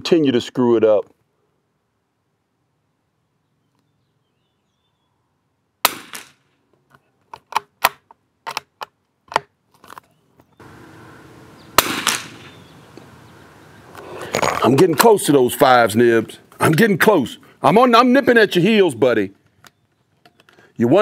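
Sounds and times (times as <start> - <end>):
rifle shot crack: 5.8 - 6.5, 11.8 - 12.7.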